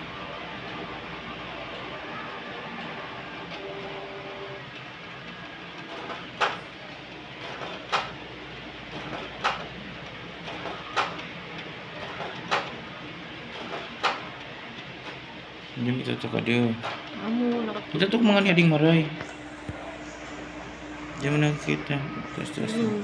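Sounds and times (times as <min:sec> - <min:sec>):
printer mechanism running: 0:00.0 - 0:17.2.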